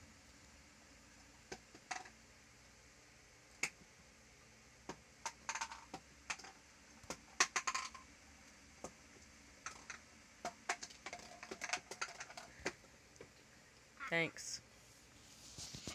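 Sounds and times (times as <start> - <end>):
plastic tubs and lids clicking: 5.2 - 8.0, 9.6 - 12.8.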